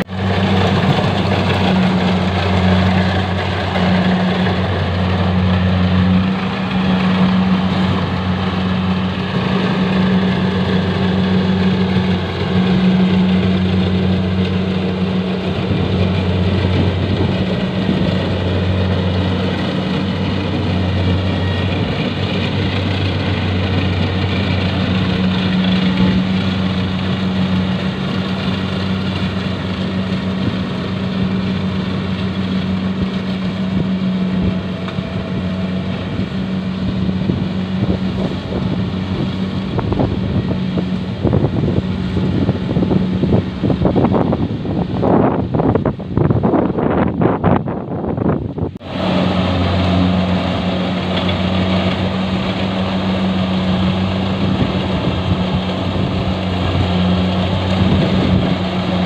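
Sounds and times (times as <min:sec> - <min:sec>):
combine harvester engine humming: 0:00.0 - 0:59.0.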